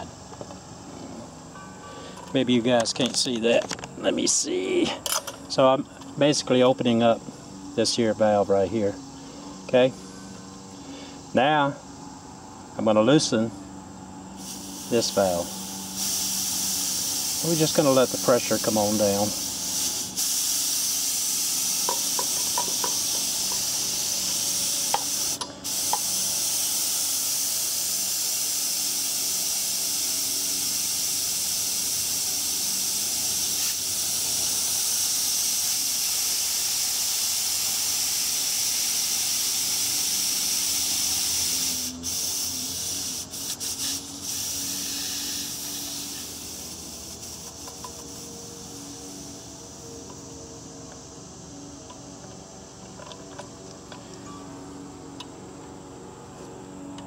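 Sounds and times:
gas hissing from valve: 14.4s - 50.6s.

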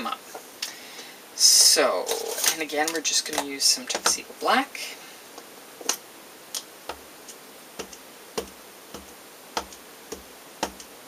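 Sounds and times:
ink pad tapping on rubber stamps: 7.8s - 10.9s.

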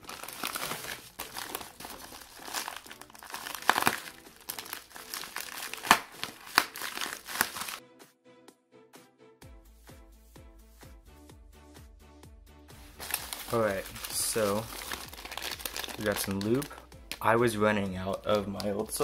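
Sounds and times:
plastic mailer crinkling: 0.0s - 7.8s, 13.0s - 16.8s.

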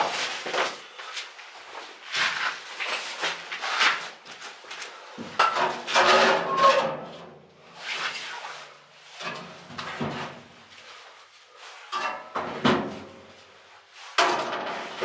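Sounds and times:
metal parts scraping and clanking: 5.4s - 7.1s.

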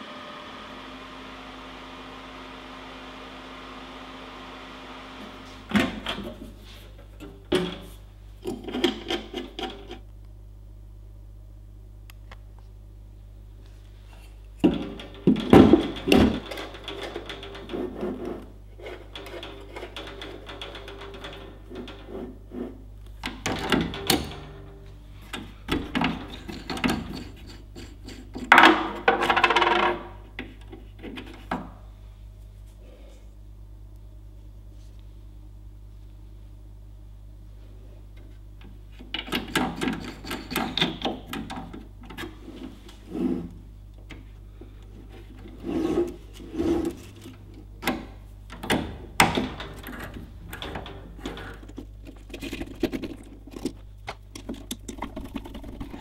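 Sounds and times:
objects knocking and clattering: 14.6s - 24.7s, 25.3s - 31.7s, 39.0s - 42.4s, 46.8s - 56.0s.

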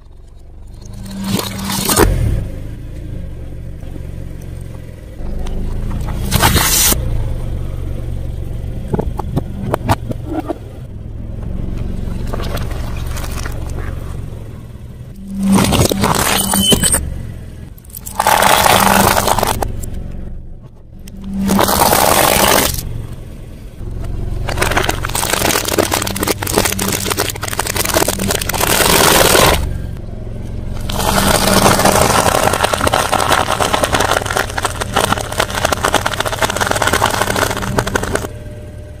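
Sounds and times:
car engine humming: 0.0s - 39.0s
tyre crushing objects on concrete: 24.4s - 29.6s, 30.8s - 38.3s.

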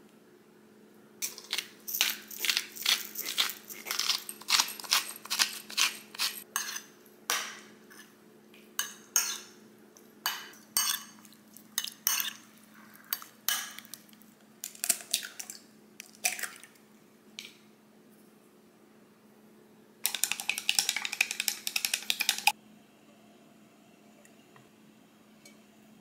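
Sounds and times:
pepper grinder crunching: 1.2s - 6.4s
egg cracking: 1.2s - 6.5s, 20.0s - 22.6s
spoon scraping glass bowl: 1.4s - 6.9s.

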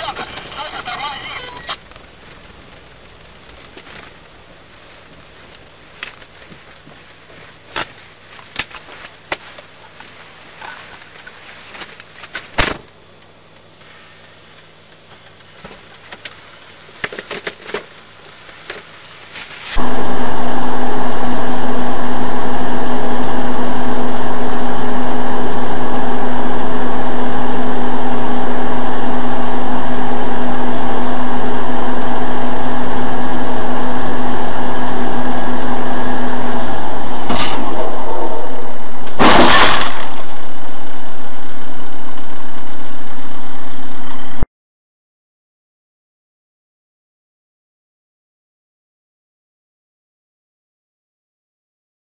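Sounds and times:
car engine and cabin drone: 19.8s - 44.4s
loud crash impact: 36.9s - 40.4s.

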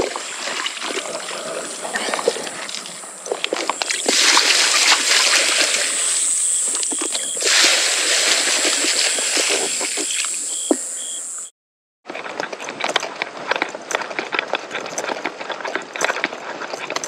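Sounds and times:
water splashing in bucket: 0.0s - 10.9s.

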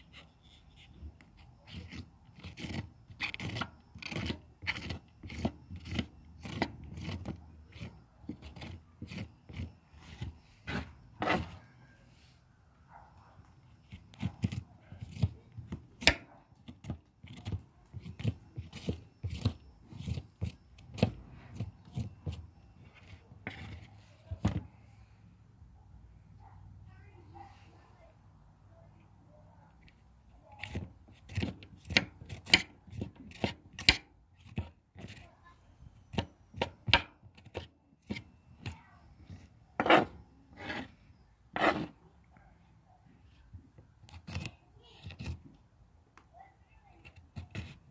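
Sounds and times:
knife scraping cactus pad: 0.0s - 12.3s, 13.7s - 24.9s, 29.8s - 35.4s, 36.0s - 42.1s, 44.0s - 45.6s, 47.0s - 47.9s
sharp scraping strokes: 0.0s - 12.3s, 37.4s - 42.0s.

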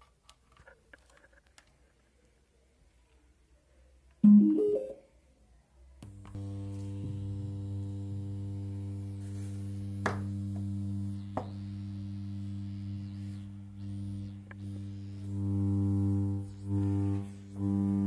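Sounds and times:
steady low hum: 6.0s - 18.0s.

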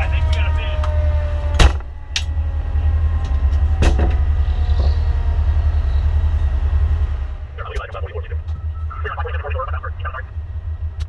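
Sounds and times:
engine and road rumble: 0.0s - 11.0s.

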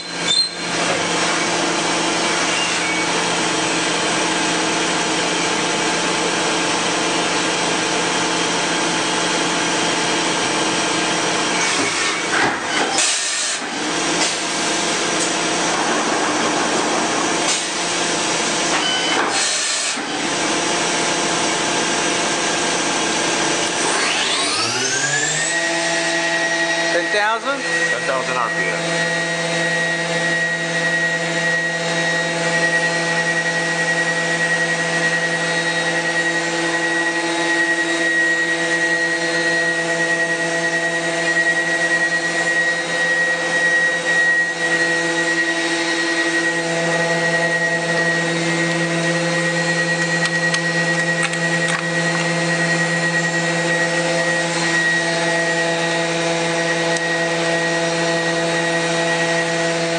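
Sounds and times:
machining center spindle whine: 20.1s - 59.9s.

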